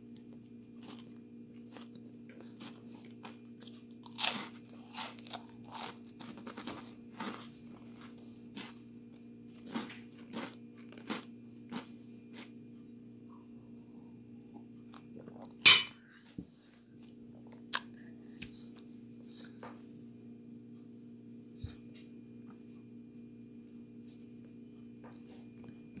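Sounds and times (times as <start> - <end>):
steady low hum: 0.0 - 26.0
glass clinking on table: 15.7 - 16.0.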